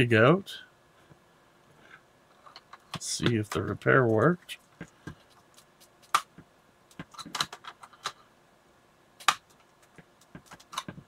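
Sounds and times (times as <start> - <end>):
plastic clicks and rattles: 6.9 - 8.2, 9.2 - 11.0.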